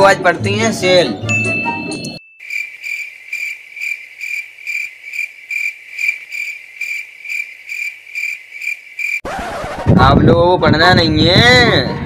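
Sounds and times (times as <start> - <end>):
cricket chirping: 2.4 - 9.2.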